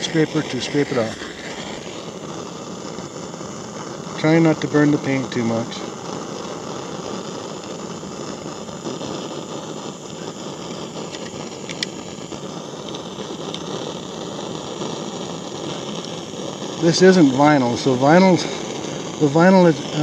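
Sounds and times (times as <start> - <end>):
propane torch hissing: 0.0 - 20.0.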